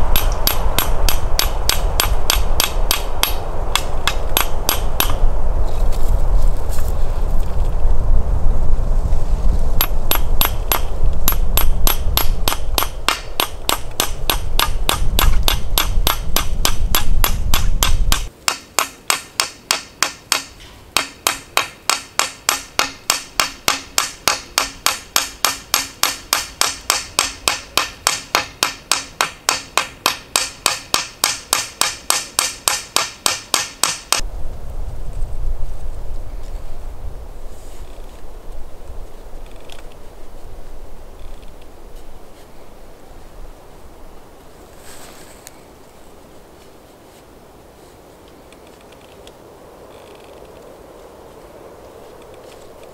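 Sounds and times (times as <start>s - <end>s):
heavy low rumble: 0.0s - 18.2s
hammer tapping metal rivets: 10.1s - 34.2s.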